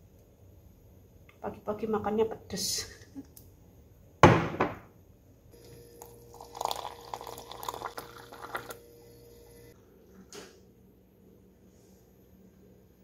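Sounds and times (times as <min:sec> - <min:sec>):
faint steady hum: 0:00.0 - 0:04.2, 0:04.8 - 0:13.0
loud knock: 0:04.2 - 0:04.9
water stream into mug: 0:05.9 - 0:08.8.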